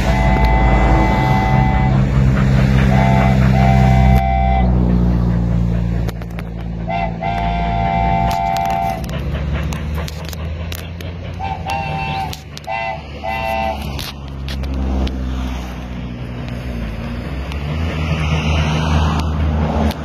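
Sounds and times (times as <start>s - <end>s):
steam locomotive whistle blasts: 0.0s - 5.1s, 6.7s - 9.3s, 11.3s - 14.2s
steam hiss: 0.0s - 14.4s
steady low rumble: 0.0s - 20.0s.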